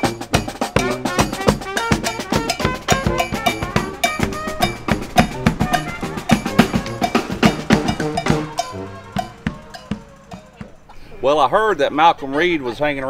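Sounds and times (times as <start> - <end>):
snare and bass drum beat: 0.0 - 10.8
marching brass band playing: 0.0 - 10.9.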